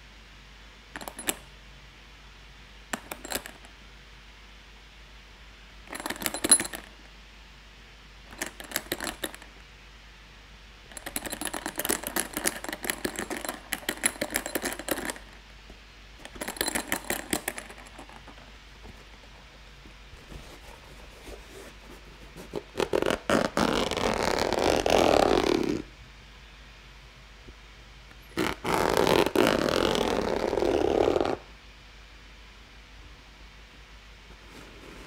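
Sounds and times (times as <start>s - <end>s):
fingers rubbing case shell: 8.3s - 9.4s, 10.9s - 15.4s, 16.2s - 18.5s
zipper ticking: 22.5s - 25.8s, 28.3s - 31.4s.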